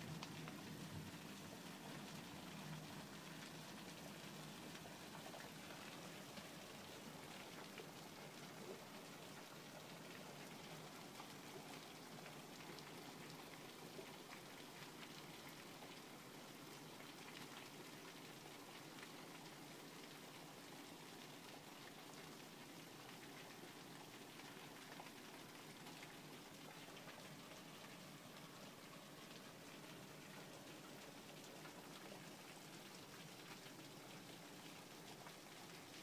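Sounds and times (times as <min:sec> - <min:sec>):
heavy rain on hard surfaces: 0:00.0 - 0:36.0.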